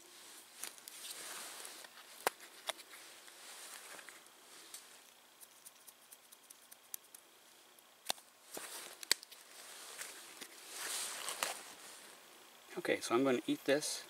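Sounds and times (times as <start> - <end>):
campfire crackling: 0.0 - 12.7.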